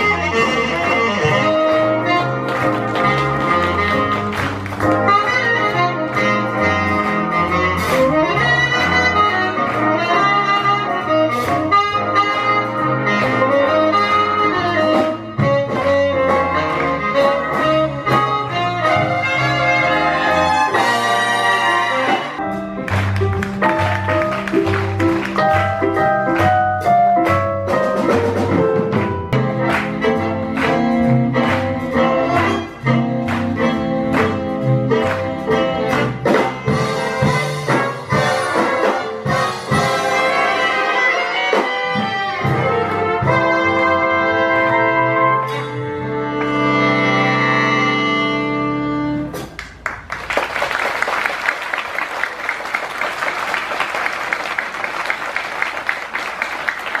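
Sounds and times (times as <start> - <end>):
big band jazz: 0.0 - 57.0
audience applause: 1.9 - 7.5, 22.7 - 26.5, 49.6 - 57.0.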